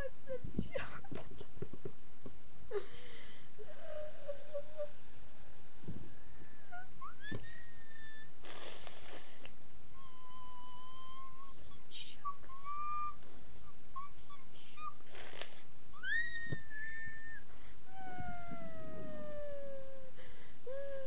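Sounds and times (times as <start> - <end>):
boy whimpering and whining: 3.6 - 5.0, 10.0 - 15.3, 16.0 - 21.0.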